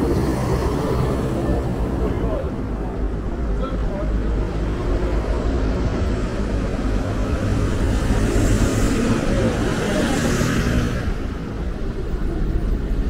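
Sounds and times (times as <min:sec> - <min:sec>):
cars passing close by: 0:00.0 - 0:13.0
low traffic rumble: 0:00.0 - 0:13.0.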